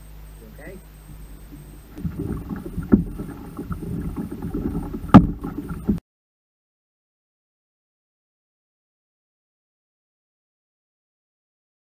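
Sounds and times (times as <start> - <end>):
water sloshing against kayak: 1.0 - 6.0
sharp knocks on kayak: 2.0 - 6.0.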